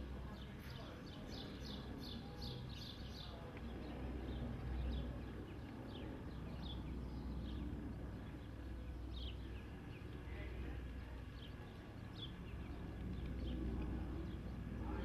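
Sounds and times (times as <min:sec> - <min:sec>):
small birds chirping: 0:00.0 - 0:15.0
steady low rumble: 0:00.0 - 0:15.0.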